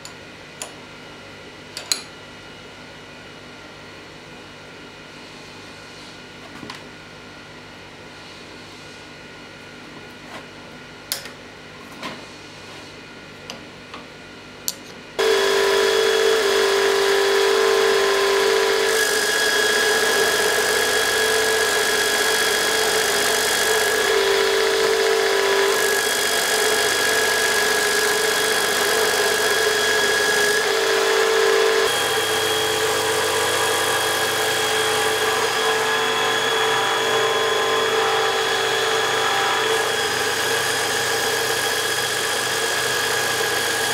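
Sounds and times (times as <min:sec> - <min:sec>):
grinding machine whining: 0:15.2 - 0:43.9.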